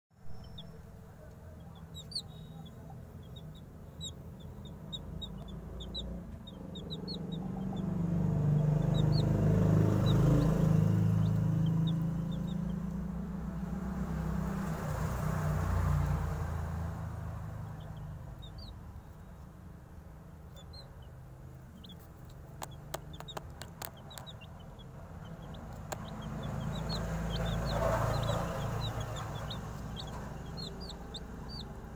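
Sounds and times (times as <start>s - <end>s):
chicks peeping: 0.3s - 13.7s, 17.5s - 19.6s, 20.3s - 31.9s.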